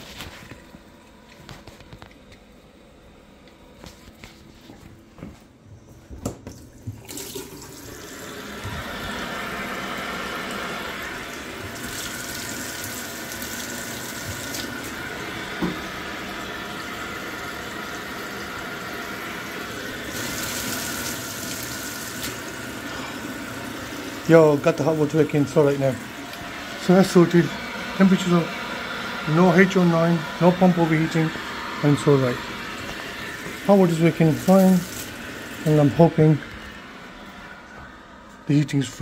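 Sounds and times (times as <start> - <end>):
tap running into sink: 11.6 - 16.0.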